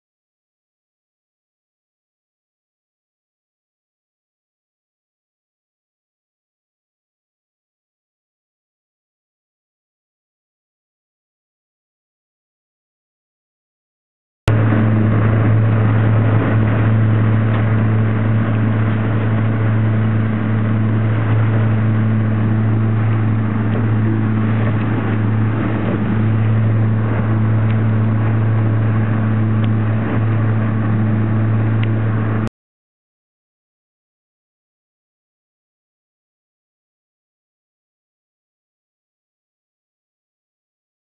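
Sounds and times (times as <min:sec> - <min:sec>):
outboard motor running: 0:14.5 - 0:32.5
rushing water: 0:14.5 - 0:32.5
wind: 0:14.5 - 0:32.5.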